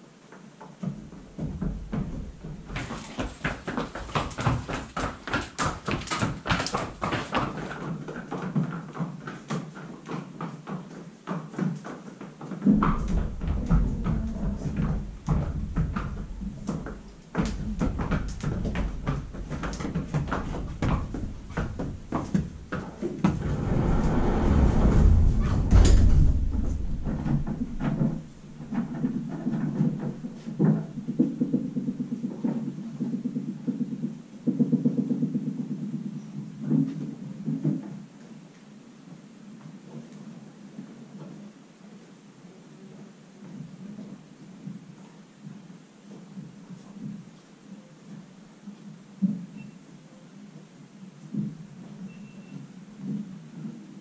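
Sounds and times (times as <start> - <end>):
horse hooves clopping on concrete: 0.2 - 41.4, 43.4 - 47.4, 50.6 - 54.0
knocks and shuffling: 0.9 - 8.7, 12.6 - 32.7
sliding door rumbling on track: 23.1 - 32.0.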